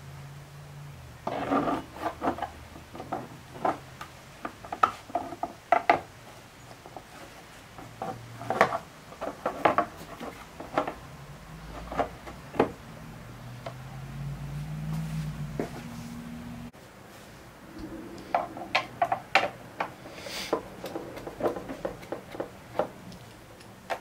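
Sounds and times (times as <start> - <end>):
plastic scraping rub: 1.2 - 3.9, 6.9 - 11.0
hard plastic parts clacking: 7.8 - 11.0
faint low hum: 10.1 - 24.0.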